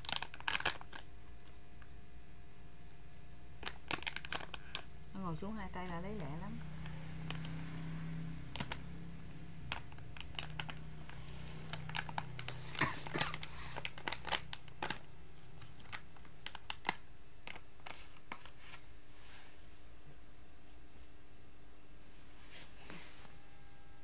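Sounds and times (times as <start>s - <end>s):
plastic wrapper crinkling: 0.0s - 1.9s, 3.5s - 7.6s, 8.3s - 18.9s.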